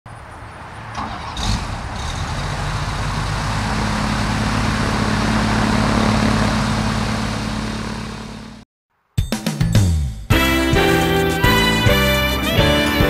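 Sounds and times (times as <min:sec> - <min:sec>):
small airplane engine starting: 0:00.4 - 0:08.6.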